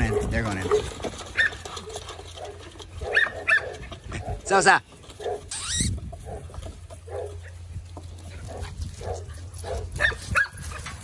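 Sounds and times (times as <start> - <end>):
puppies whimpering yelps: 5.5 - 6.0.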